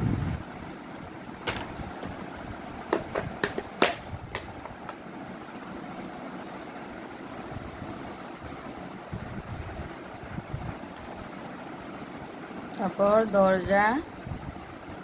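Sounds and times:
chalk tapping and scraping: 4.9s - 9.2s.

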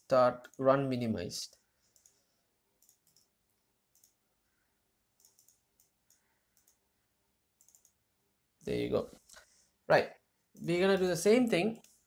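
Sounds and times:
computer mouse clicks: 1.9s - 2.2s, 2.8s - 4.2s, 5.1s - 6.8s, 7.6s - 8.0s.

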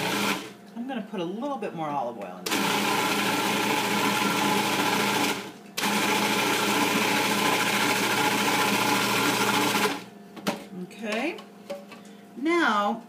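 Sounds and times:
food processor motor running: 0.0s - 0.6s, 2.5s - 10.1s.

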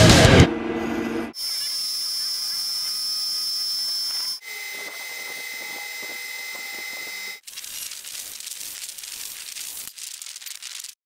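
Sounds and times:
drill press boring into steel: 1.4s - 7.4s
lathe cutting steel whine: 1.4s - 7.4s.

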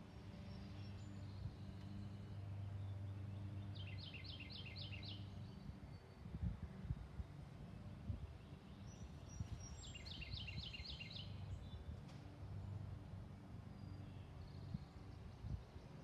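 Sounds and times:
songbird singing: 0.0s - 6.4s, 8.4s - 12.0s, 13.6s - 16.0s.

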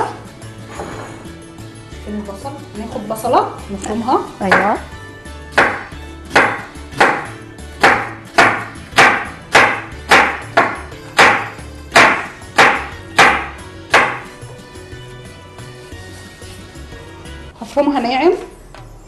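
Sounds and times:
knife cutting onion on wooden board: 5.5s - 14.3s.

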